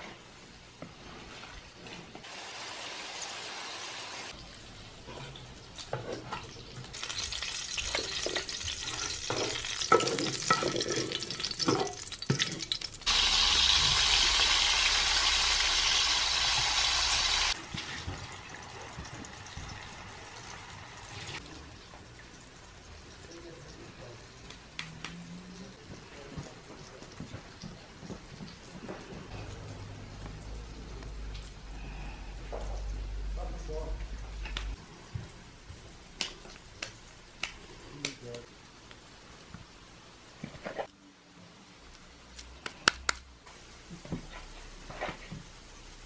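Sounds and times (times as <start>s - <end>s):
potatoes sizzling in hot oil: 2.2s - 24.3s.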